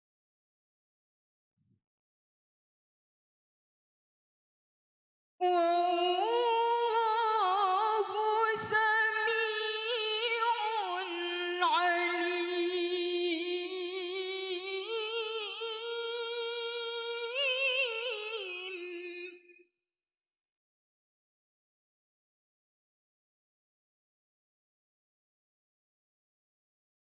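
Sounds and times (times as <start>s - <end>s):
woman reciting melodically: 5.4s - 19.5s.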